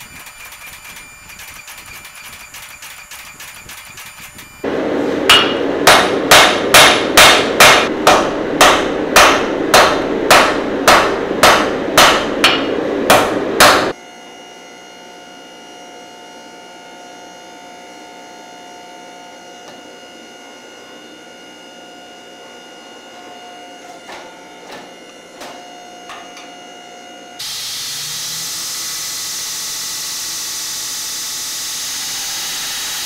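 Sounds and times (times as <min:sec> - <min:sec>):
hammer striking metal on anvil: 0:05.2 - 0:14.0.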